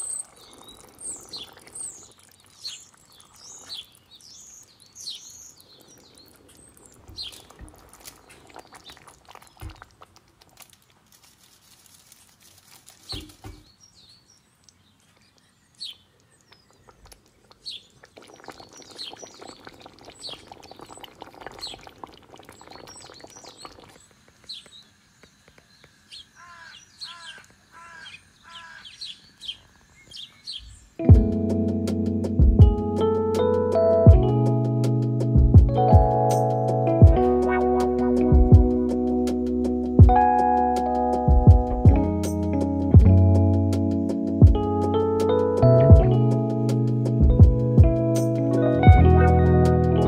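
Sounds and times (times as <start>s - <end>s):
small birds chirping: 0.0s - 10.1s, 13.0s - 31.0s.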